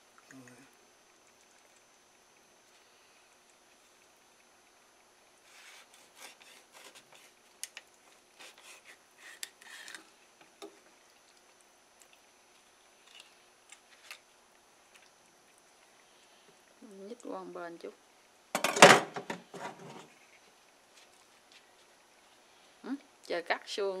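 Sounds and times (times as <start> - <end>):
knife scraping fish fillet: 5.5 - 7.4, 8.4 - 10.0.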